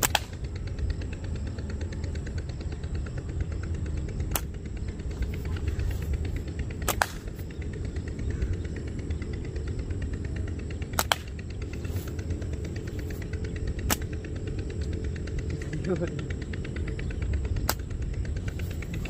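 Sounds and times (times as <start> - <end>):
slingshot snapping: 0.0 - 0.4, 11.0 - 11.3
low rumble: 0.0 - 19.0.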